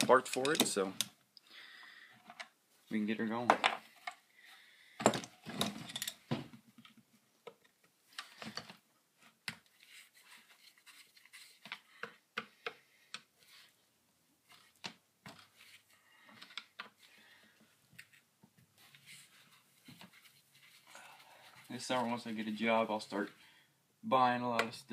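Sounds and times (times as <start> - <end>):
screwdriver clicking and scraping: 0.0 - 1.2.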